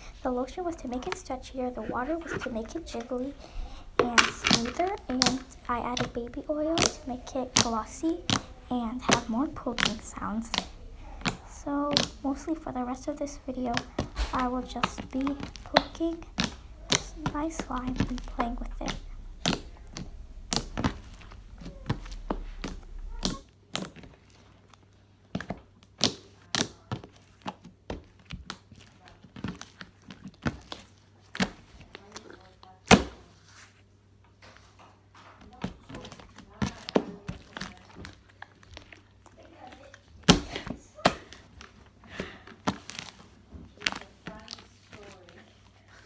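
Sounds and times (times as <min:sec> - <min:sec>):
slime popping: 0:00.0 - 0:23.9
slime squelching: 0:00.0 - 0:33.2, 0:35.4 - 0:46.0.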